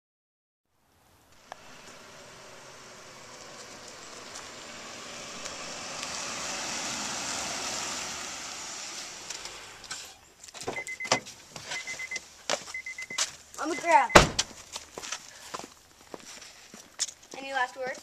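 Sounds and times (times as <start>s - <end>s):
minivan driving past: 0.8s - 11.0s
car door opening: 9.2s - 12.2s, 12.8s - 14.6s
car warning chime beeping: 10.7s - 14.4s.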